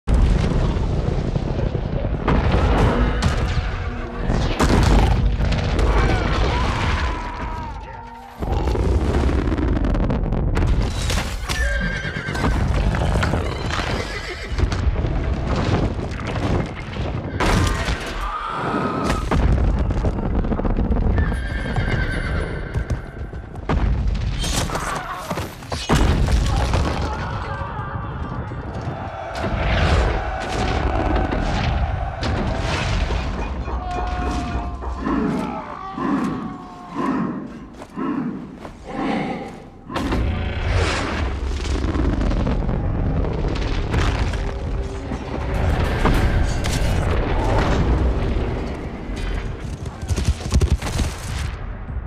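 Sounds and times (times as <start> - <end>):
explosions booming: 0.1 - 7.6, 8.4 - 11.4, 19.1 - 21.8, 25.9 - 35.1, 39.8 - 52.0
horses whinnying: 11.5 - 14.7, 21.1 - 23.0
film music score: 27.2 - 52.0.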